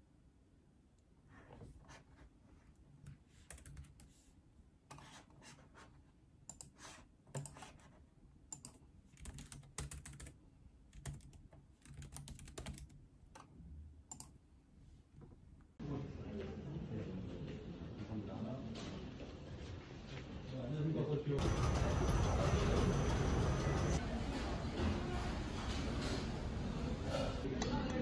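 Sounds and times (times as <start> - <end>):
laptop keyboard typing: 3.4 - 4.1, 6.5 - 7.9, 8.5 - 13.5.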